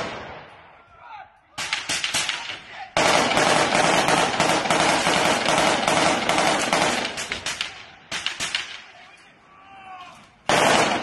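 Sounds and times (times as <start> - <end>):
automatic gunfire: 1.6 - 8.8, 10.5 - 11.0.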